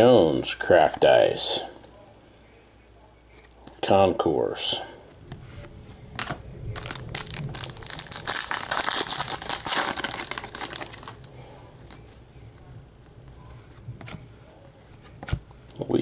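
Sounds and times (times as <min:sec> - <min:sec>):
card handling: 0:06.2 - 0:12.7
foil wrapper crinkling: 0:06.8 - 0:11.3.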